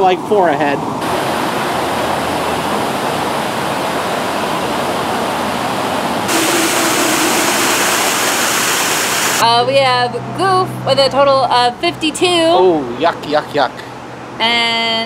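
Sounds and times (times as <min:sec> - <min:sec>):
waterfall rushing: 0:06.3 - 0:09.4.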